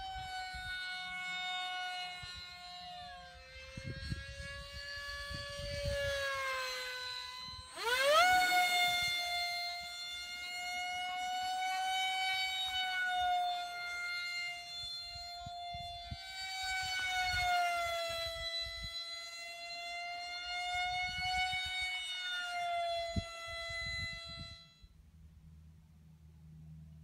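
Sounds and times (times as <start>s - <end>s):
wind rumble on microphone: 0.0s - 9.4s, 14.8s - 19.0s, 20.7s - 22.0s, 22.8s - 25.5s
electric fan motor whining: 0.0s - 25.0s.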